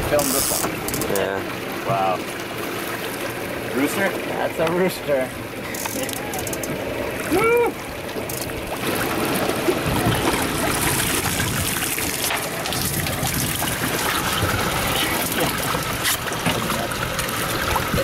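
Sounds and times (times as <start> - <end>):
water splashing and trickling: 0.0 - 18.0
fish thrashing in water: 8.1 - 18.0.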